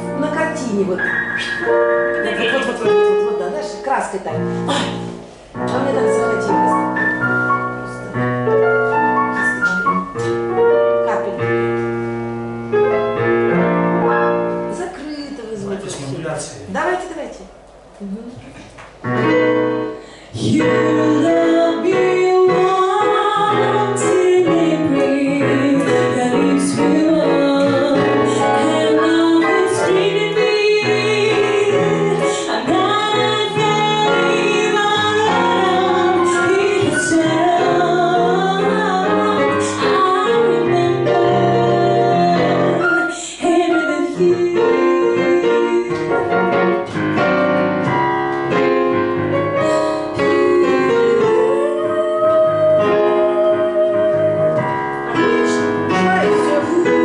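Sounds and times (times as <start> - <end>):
woman singing jazz: 0.0 - 8.7, 19.5 - 46.9, 49.6 - 57.0
digital piano: 0.0 - 57.0.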